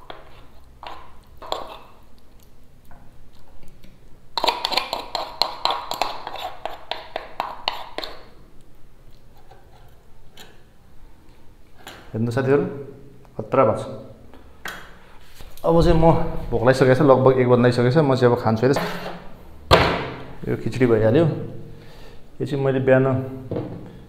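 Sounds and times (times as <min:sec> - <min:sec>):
utensil scraping against a dish: 0:00.0 - 0:02.0, 0:04.4 - 0:08.3, 0:18.8 - 0:19.3.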